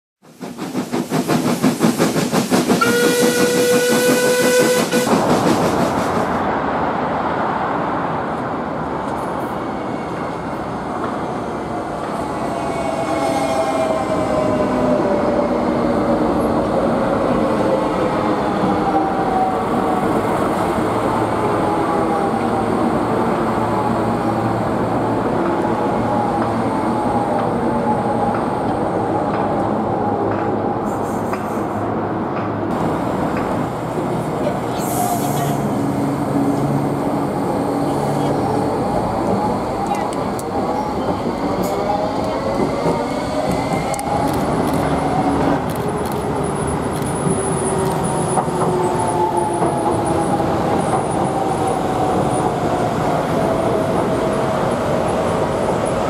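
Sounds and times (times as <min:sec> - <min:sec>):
steam locomotive chuffing: 0:00.2 - 0:06.4
train rumbling past: 0:00.2 - 0:56.0
steam whistle blowing: 0:02.8 - 0:05.2.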